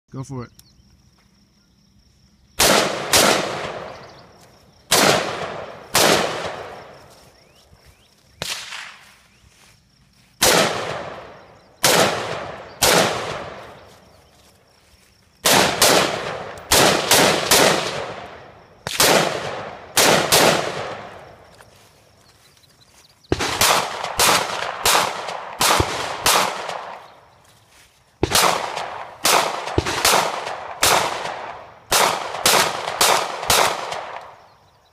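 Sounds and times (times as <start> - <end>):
pistol shots: 2.6 - 4.0, 4.9 - 6.9, 8.4 - 9.0, 10.4 - 13.8, 15.4 - 21.2, 23.3 - 27.0, 28.2 - 34.4
rifle shots echoing: 2.6 - 4.3, 4.9 - 7.0, 8.4 - 9.0, 10.4 - 13.9, 15.4 - 21.4, 23.3 - 27.1, 28.2 - 34.4.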